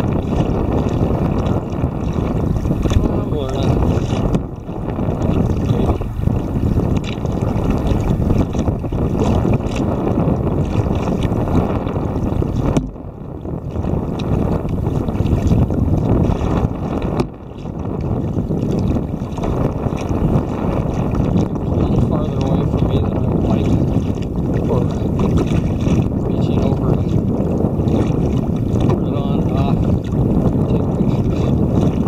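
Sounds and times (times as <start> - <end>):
wind buffeting microphone: 0.0 - 32.0.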